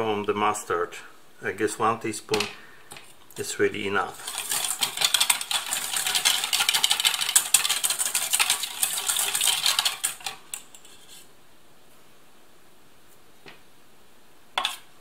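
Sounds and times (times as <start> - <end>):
whisk scraping a steel bowl: 4.1 - 11.2.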